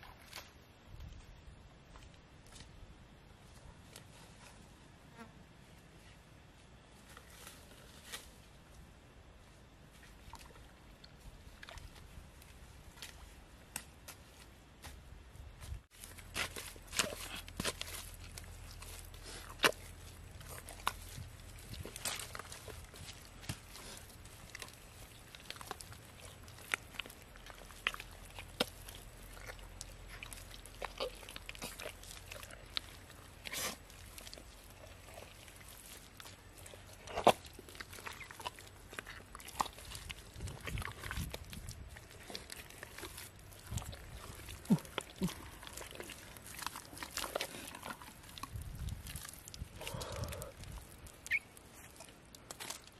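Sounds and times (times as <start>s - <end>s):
mud squelches: 0.0s - 4.4s, 7.0s - 52.9s
hands scraping in wet mud: 16.0s - 52.9s.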